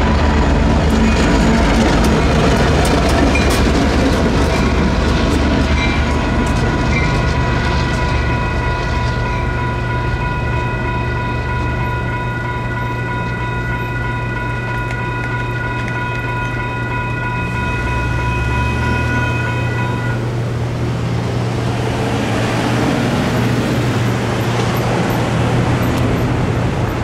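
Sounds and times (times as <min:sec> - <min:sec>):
locomotive engines humming: 0:00.0 - 0:27.0
train wheel clicks: 0:00.8 - 0:09.2, 0:12.8 - 0:17.2
electronic crossing bell ringing: 0:05.8 - 0:20.3.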